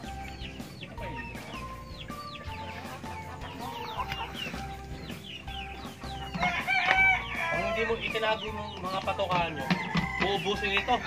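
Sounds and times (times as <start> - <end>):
chickens clucking: 0.0 - 11.0
rooster crowing: 6.3 - 8.0, 9.5 - 11.0.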